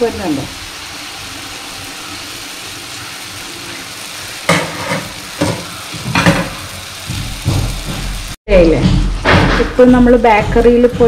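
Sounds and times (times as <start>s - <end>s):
batter sizzling in hot oil: 0.0s - 8.4s.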